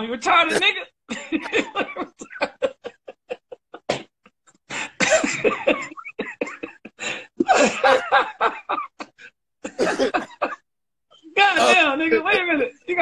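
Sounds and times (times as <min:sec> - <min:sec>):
men coughing: 0:00.4 - 0:02.6, 0:03.7 - 0:10.6
men laughing hard: 0:00.4 - 0:03.9, 0:04.7 - 0:10.6.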